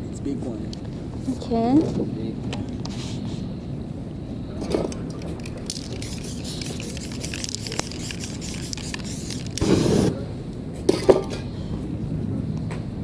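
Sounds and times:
spray paint can hissing: 0:05.6 - 0:10.1.

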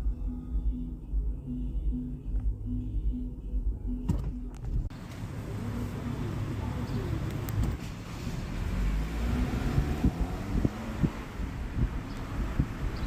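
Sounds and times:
music: 0:00.0 - 0:04.9
street traffic rumble: 0:00.0 - 0:13.0.

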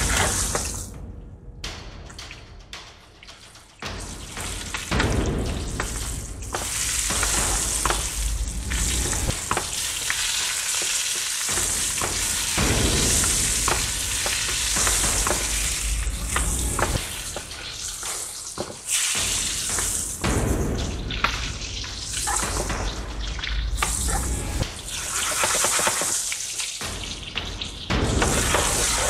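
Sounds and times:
meat sizzling in butter: 0:08.8 - 0:15.7.

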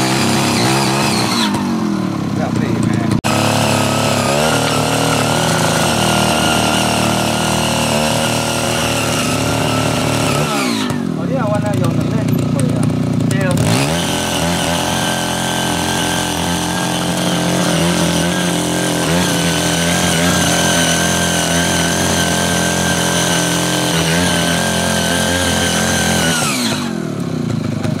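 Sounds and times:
power tiller engine running: 0:00.0 - 0:28.0.

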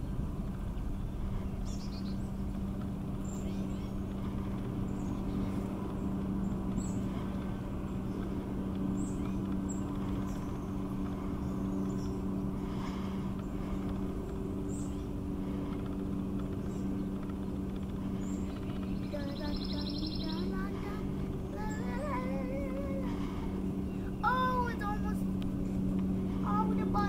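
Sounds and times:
low mechanical hum: 0:00.0 - 0:27.0
high bird chirps: 0:18.2 - 0:20.5.

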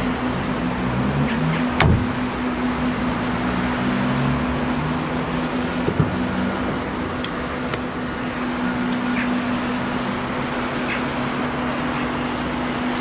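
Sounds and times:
vehicle engine humming: 0:00.0 - 0:13.0
car door knock: 0:01.8 - 0:02.1.

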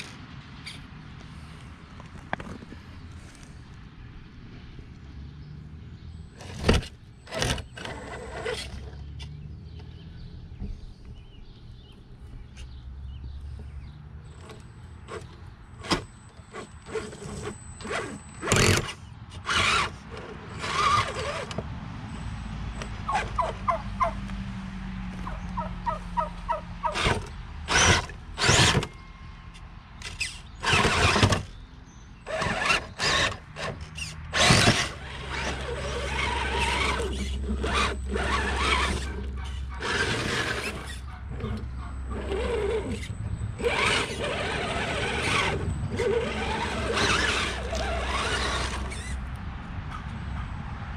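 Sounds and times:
electric motor whining: 0:14.3 - 0:21.6, 0:26.9 - 0:29.0, 0:30.0 - 0:31.5, 0:32.2 - 0:49.2
tyres scraping against stone: 0:14.3 - 0:21.6, 0:30.0 - 0:31.5, 0:32.3 - 0:49.2.

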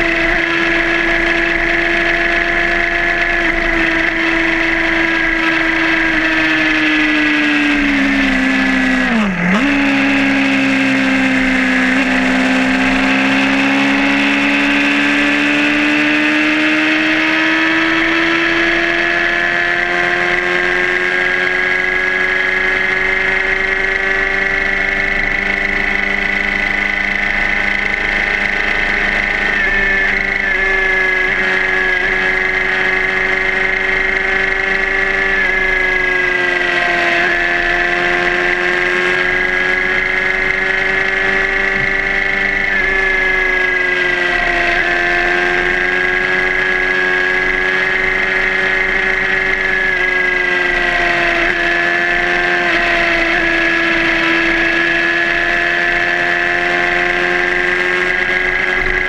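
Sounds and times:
motorcycle engine at speed: 0:00.0 - 0:59.0.

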